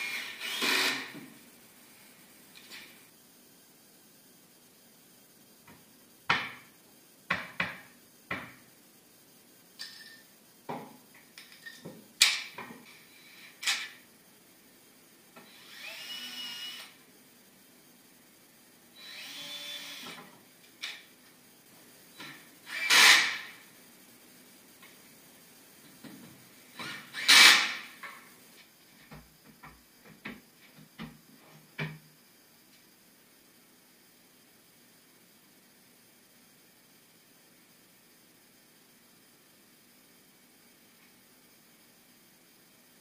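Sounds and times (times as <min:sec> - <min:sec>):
cordless drill whirring: 0:00.0 - 0:01.1, 0:15.4 - 0:17.0, 0:19.0 - 0:20.2, 0:22.7 - 0:23.4.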